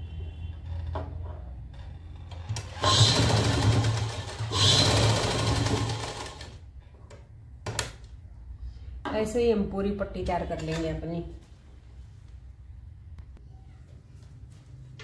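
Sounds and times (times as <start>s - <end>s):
sewing machine stitching: 1.8s - 6.6s.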